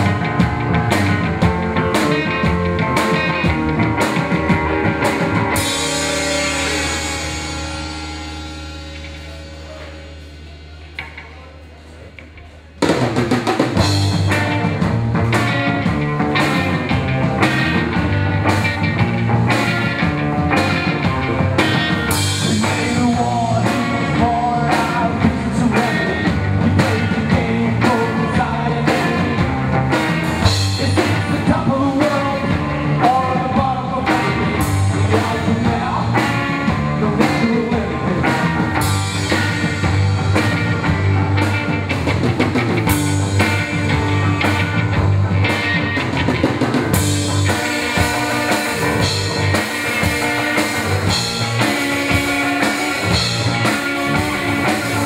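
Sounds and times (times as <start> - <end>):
bass guitar: 0.0 - 55.0
drum kit: 0.0 - 55.0
electric guitars: 0.0 - 55.0
man singing: 1.9 - 8.1, 20.6 - 39.9.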